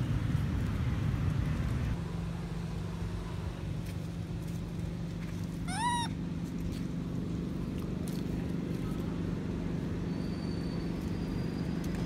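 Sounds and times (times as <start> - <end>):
monkey squealing: 5.6 - 6.2.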